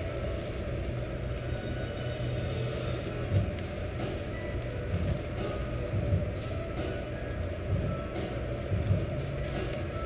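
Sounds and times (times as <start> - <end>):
extractor fan rumble: 0.0 - 10.0.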